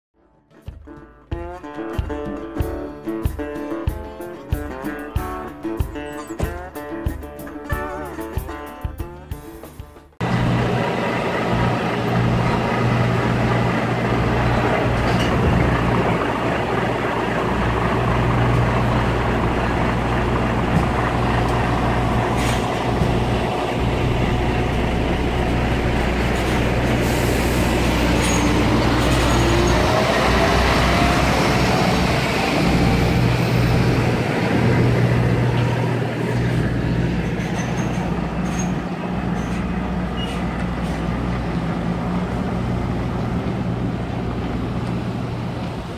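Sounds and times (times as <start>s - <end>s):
lorry diesel engine: 10.2s - 45.9s.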